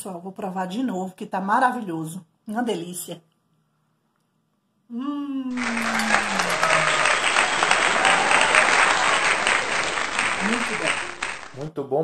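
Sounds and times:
woman humming mmm of relish: 0:04.9 - 0:05.7
applause: 0:05.5 - 0:11.7.

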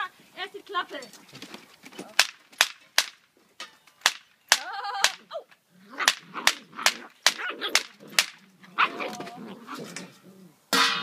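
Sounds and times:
clapper cracks: 0:01.0 - 0:05.2, 0:06.0 - 0:08.5.

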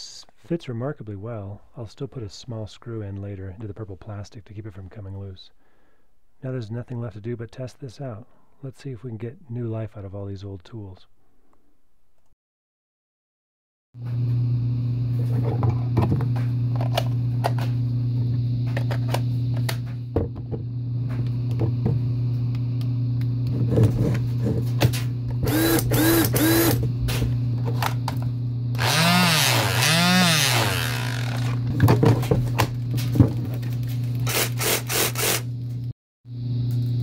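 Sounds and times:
steady low hum: 0:14.0 - 0:37.0
cordless tool motor whirring: 0:25.4 - 0:26.8, 0:28.8 - 0:31.7, 0:34.2 - 0:35.5.

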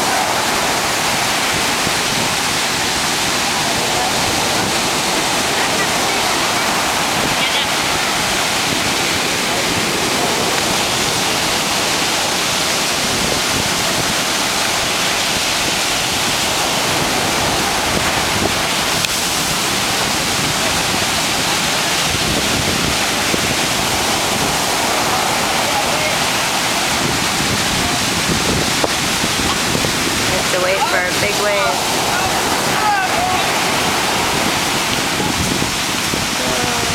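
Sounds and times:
heavy surf breaking on beach: 0:00.0 - 0:36.9.

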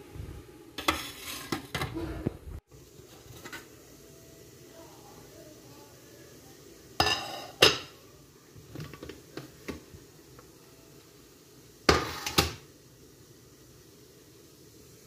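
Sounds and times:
metal cookware clanking: 0:00.8 - 0:02.2, 0:07.0 - 0:08.0.

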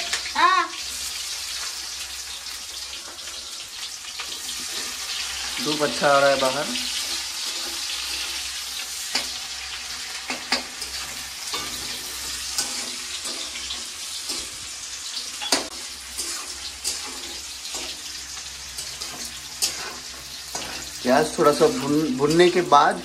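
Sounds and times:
onions sizzling in hot oil: 0:00.0 - 0:23.0
crackles and clicks of stirring: 0:02.5 - 0:05.6, 0:06.8 - 0:14.6, 0:15.2 - 0:22.6.

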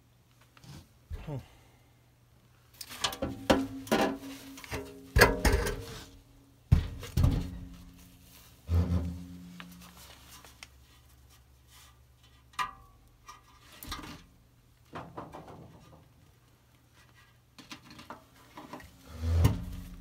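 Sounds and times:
sheet metal knocks and clanks: 0:03.0 - 0:06.0, 0:06.7 - 0:07.8
sheet metal rubbing: 0:08.7 - 0:09.3.

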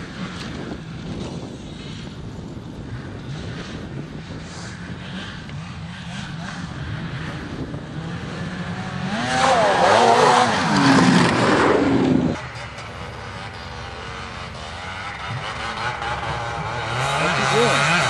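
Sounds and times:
snowmobile engine revving: 0:04.8 - 0:18.0.

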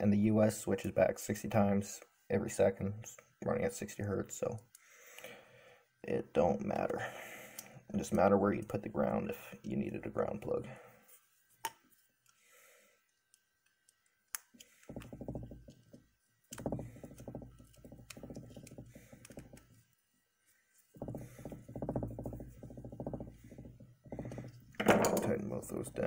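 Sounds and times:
screwdriver clicking and scraping: 0:13.3 - 0:19.8.

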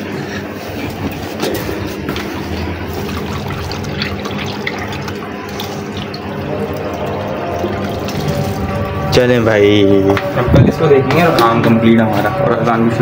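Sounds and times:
water pouring onto soil: 0:02.1 - 0:09.1.

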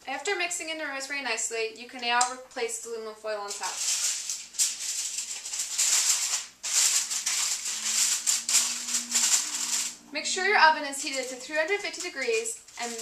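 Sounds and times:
aluminium foil crinkling: 0:03.4 - 0:13.0.

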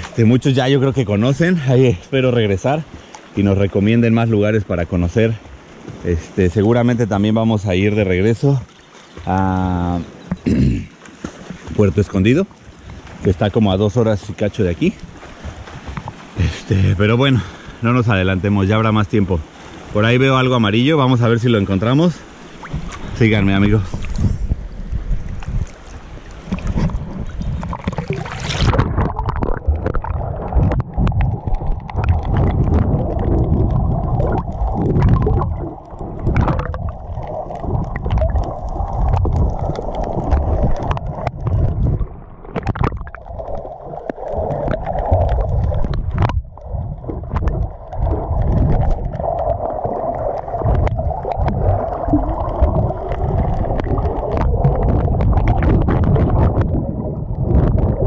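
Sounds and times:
muffled underwater water rumble: 0:00.0 - 0:58.0
underwater clicks and knocks: 0:10.2 - 0:12.2, 0:15.6 - 0:16.3, 0:25.1 - 0:58.0.

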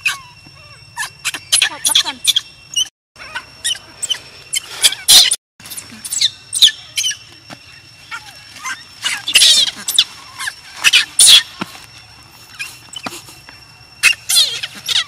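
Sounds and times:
baby monkey squealing cries: 0:00.0 - 0:07.3, 0:08.0 - 0:11.6, 0:14.0 - 0:15.0.

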